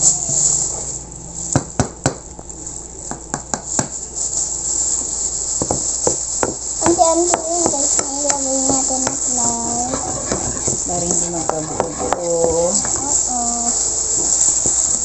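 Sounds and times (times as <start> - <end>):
steady high hiss: 2.4 - 15.0
spoon and whisk tapping bowls: 5.6 - 14.8.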